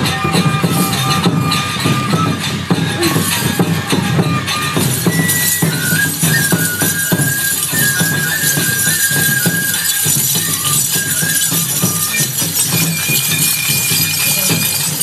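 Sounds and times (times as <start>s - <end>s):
drum strikes: 0.0s - 15.0s
flute melody: 0.0s - 15.0s
metal jingling and clinking: 4.6s - 15.0s.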